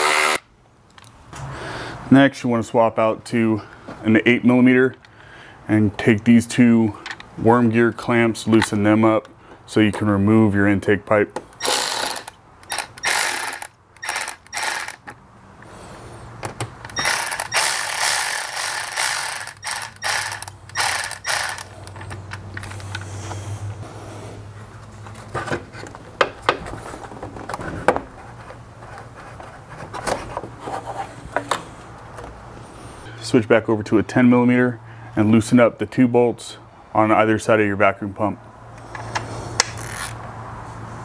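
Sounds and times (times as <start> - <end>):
ratchet wrench clicking: 11.6 - 15.0, 16.9 - 21.8, 38.8 - 40.2.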